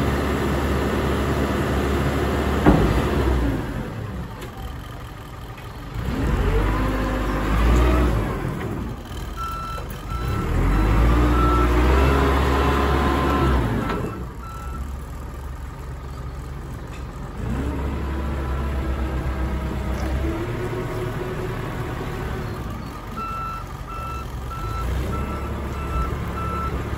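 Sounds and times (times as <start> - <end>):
diesel engine revving: 0.0 - 26.9
reversing alarm beeping: 23.2 - 26.8.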